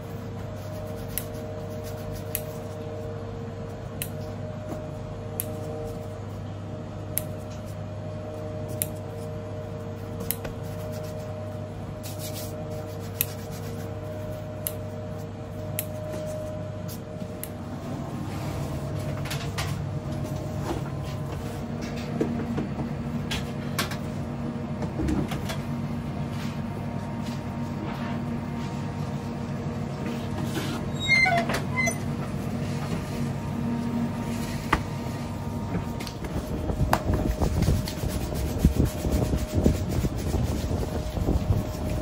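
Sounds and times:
kitchen machinery humming: 0.0s - 42.0s
brief squeak: 30.9s - 32.1s.

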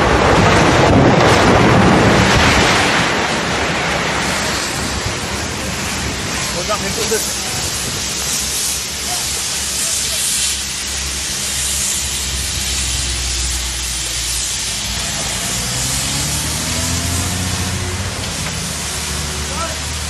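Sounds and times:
diesel truck engine: 0.0s - 20.0s
steady hiss: 2.7s - 20.0s.

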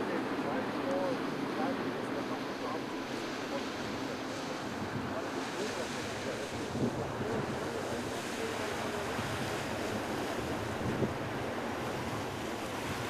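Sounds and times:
choppy river water: 0.0s - 13.0s
wind on microphone: 3.0s - 13.0s.

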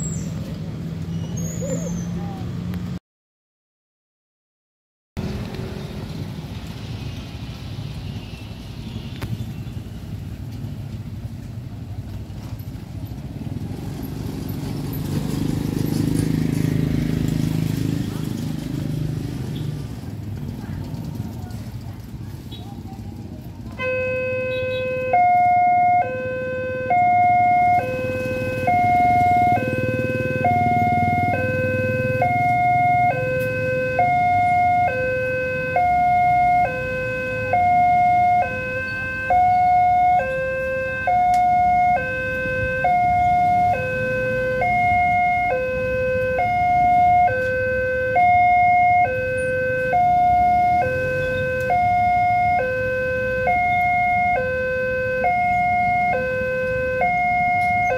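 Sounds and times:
two-tone crossing alarm: 23.8s - 57.9s.

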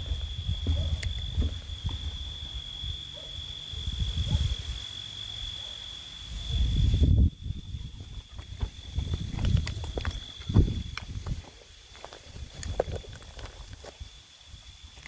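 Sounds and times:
footsteps walking: 0.0s - 2.7s, 8.0s - 14.1s
cricket trilling: 0.0s - 15.0s.

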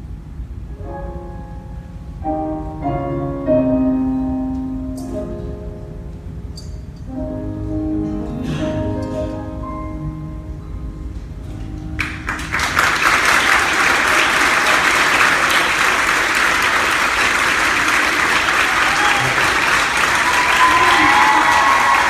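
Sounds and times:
ensemble music: 0.0s - 13.1s
audience applause: 12.0s - 22.0s.

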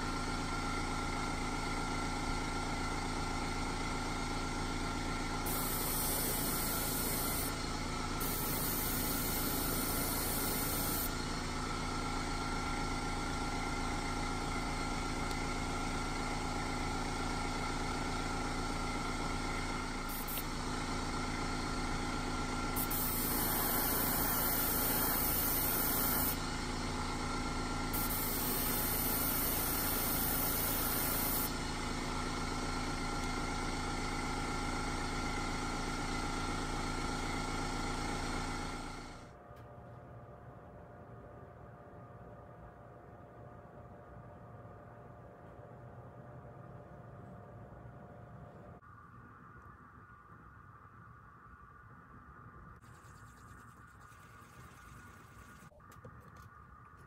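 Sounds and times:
airbrush compressor humming: 0.0s - 39.3s.

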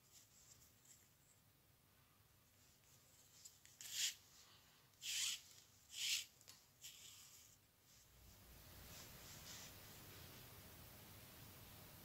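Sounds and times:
cord rubbing through rope: 2.8s - 8.1s, 8.8s - 10.1s.

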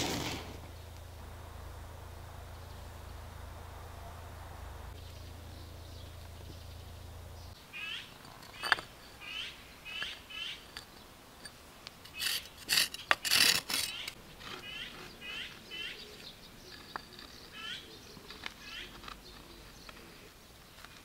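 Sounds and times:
hand scraping gravel: 0.0s - 0.7s, 10.6s - 17.6s
bird chirping: 4.9s - 11.2s, 13.9s - 21.0s.

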